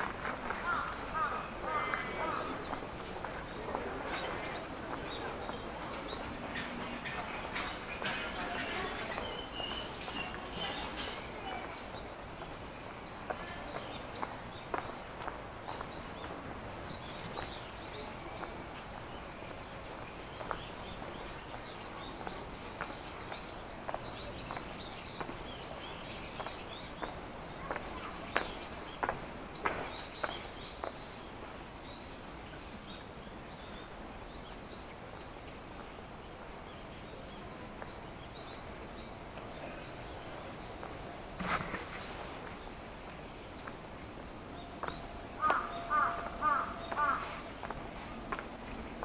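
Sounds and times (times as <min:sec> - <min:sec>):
footsteps walking on path: 0:00.0 - 0:31.2, 0:40.1 - 0:43.9, 0:44.8 - 0:49.0
small birds chirping: 0:00.0 - 0:49.0
steady background noise: 0:00.0 - 0:49.0.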